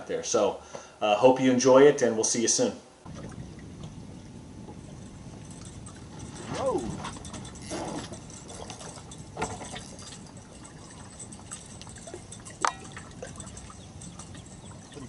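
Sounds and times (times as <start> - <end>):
water lapping against boat hull: 3.1 - 15.0.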